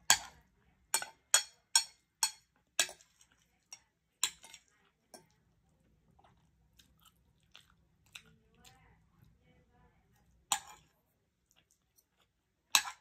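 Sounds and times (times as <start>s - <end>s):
cutlery clinking against a plate: 0.0s - 5.3s, 10.5s - 10.8s, 12.7s - 13.0s.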